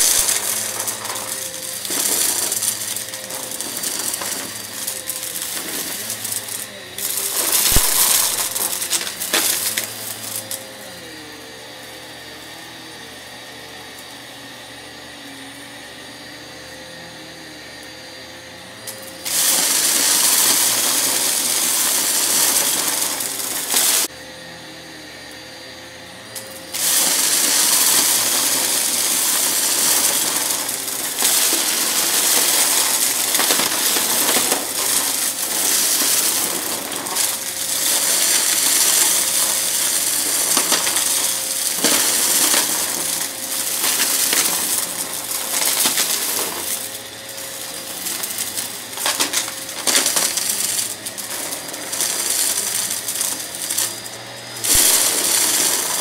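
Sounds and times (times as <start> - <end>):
debris crackling through vacuum: 0.0 - 10.5
vacuum cleaner motor whine: 0.0 - 56.0.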